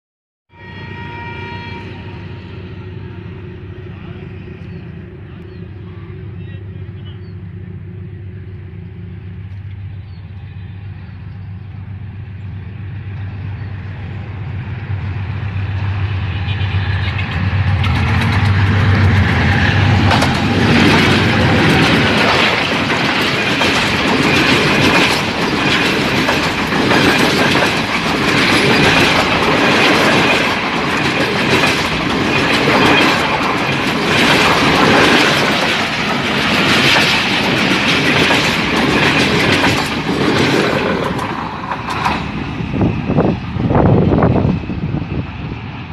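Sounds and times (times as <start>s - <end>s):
diesel locomotive engine hum: 0.5s - 45.9s
train coaches rushing past: 0.8s - 45.9s
wheels clacking over rail joints: 17.0s - 42.5s.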